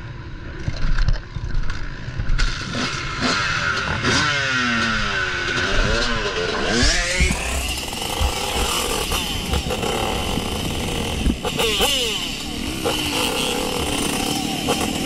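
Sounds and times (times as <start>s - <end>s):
second motorcycle engine: 2.3s - 15.0s
dirt bike engine revving: 2.4s - 15.0s
wind on helmet microphone: 6.7s - 11.5s.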